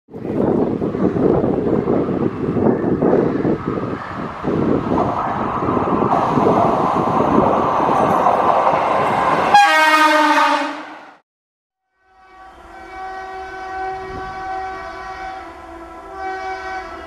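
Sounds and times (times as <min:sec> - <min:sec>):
trains rumbling: 0:00.1 - 0:11.2
locomotive horn blowing: 0:09.5 - 0:11.0, 0:11.8 - 0:17.0.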